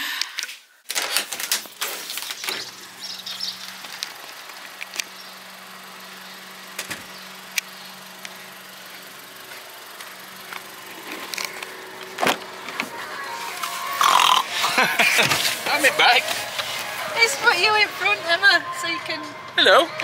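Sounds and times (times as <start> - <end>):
car engine idling: 1.5 - 20.0
people rustling and knocking: 15.0 - 16.8.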